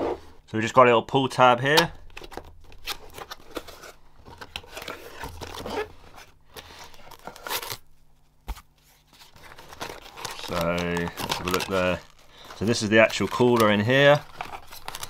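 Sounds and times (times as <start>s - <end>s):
foam padding crinkling: 4.7s - 15.0s
cardboard box being handled: 8.5s - 15.0s.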